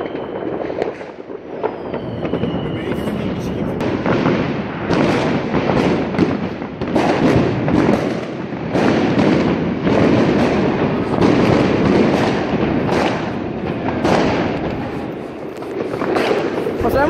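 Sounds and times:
fireworks and firecrackers banging: 0.0s - 17.0s.

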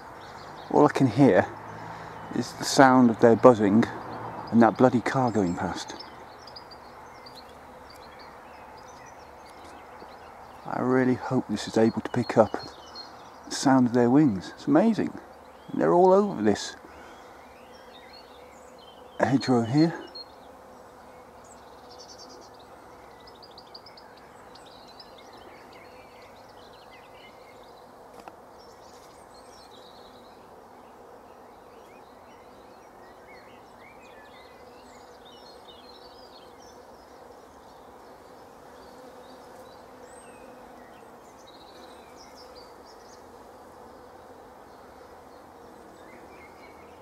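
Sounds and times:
bees buzzing: 0.0s - 47.0s
small birds chirping: 0.0s - 47.0s.

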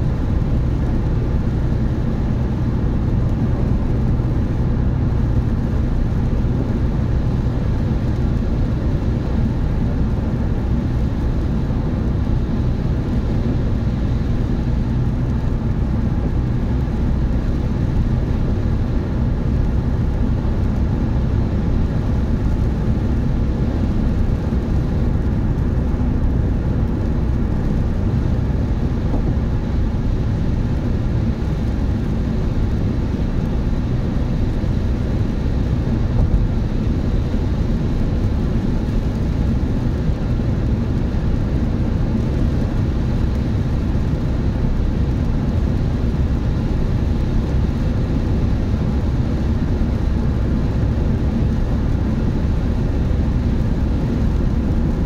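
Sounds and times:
car road and engine noise: 0.0s - 55.0s.

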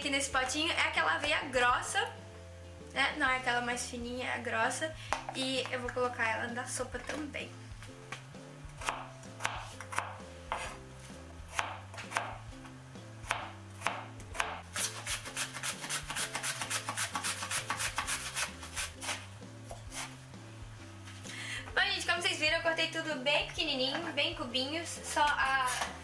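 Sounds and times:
background music: 0.0s - 26.0s
knife chopping on plastic board: 8.8s - 10.8s, 11.5s - 20.1s
onion sliding over mandoline slicer: 14.7s - 20.2s.

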